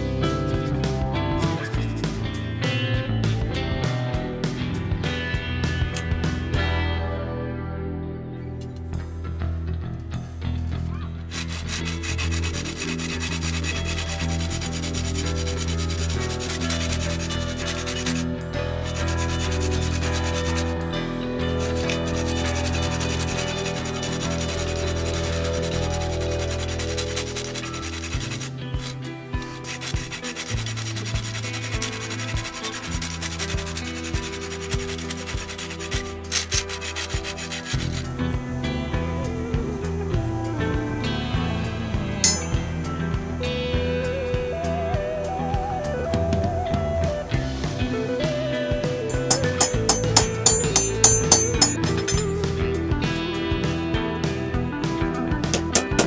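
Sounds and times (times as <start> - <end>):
quiet background music: 0.0 - 56.0
hand file scraping steel: 11.2 - 20.8, 21.4 - 38.2, 42.2 - 42.8, 49.1 - 52.3, 55.5 - 56.0.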